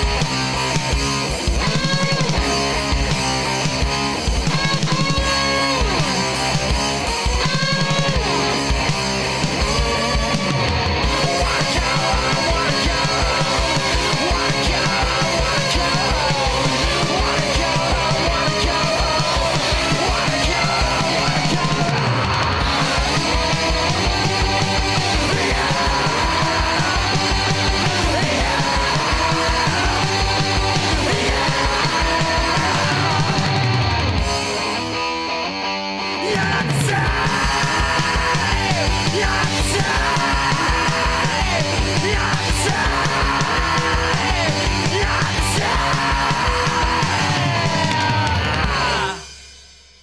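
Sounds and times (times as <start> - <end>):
heavy rock music: 0.0 - 49.9.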